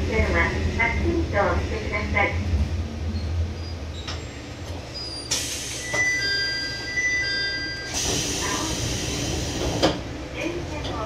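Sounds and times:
hiss: 8.0 - 9.8.

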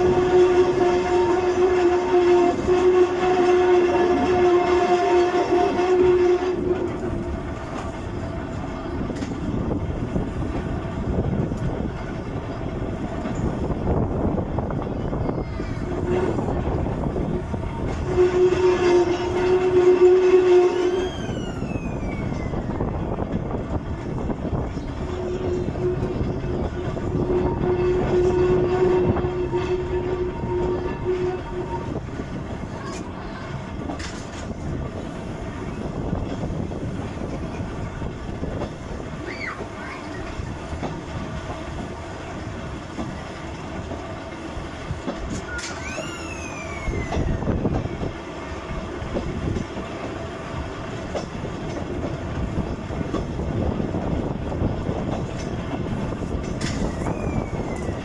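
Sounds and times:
train wheels rumbling on rail: 0.0 - 58.0
high falling wheel squeals: 20.8 - 22.8, 45.4 - 47.6, 56.7 - 58.0.

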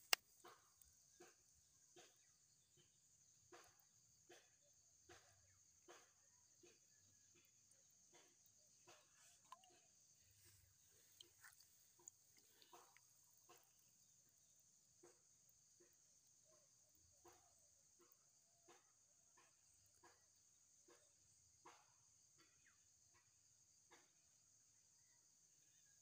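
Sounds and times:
high-pitched insect hum: 0.0 - 26.0
hand squelching in wet mud: 9.1 - 13.6.

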